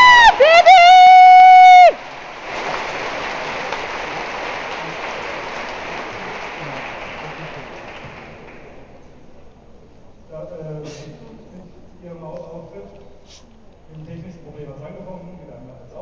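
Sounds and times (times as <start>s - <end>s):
audience applause: 0.0s - 9.0s.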